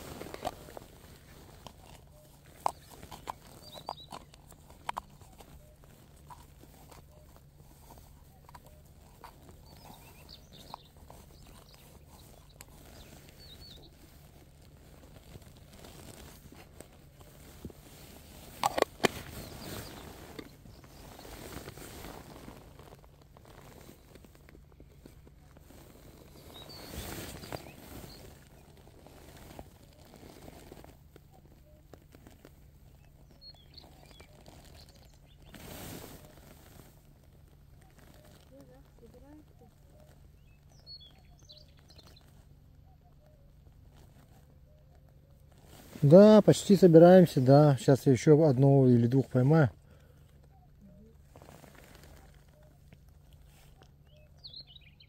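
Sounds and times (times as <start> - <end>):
faint bird call: 25.0 - 37.0, 37.6 - 46.8, 49.3 - 55.0.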